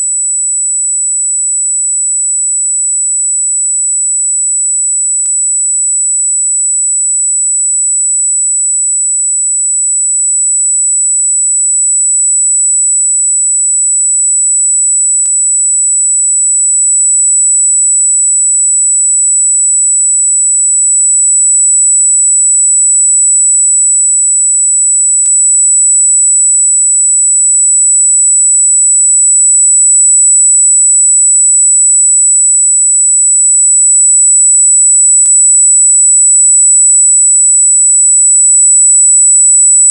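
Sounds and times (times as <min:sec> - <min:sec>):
high-pitched electronic sine tone: 0:20.2 - 0:39.9.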